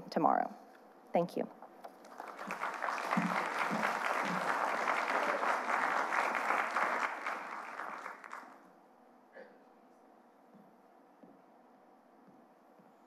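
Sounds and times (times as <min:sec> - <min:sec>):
audience applauding: 0:01.9 - 0:08.7.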